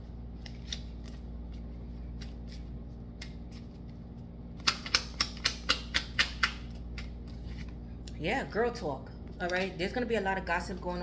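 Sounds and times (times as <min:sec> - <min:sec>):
cards shuffled by hand: 0:00.3 - 0:05.4.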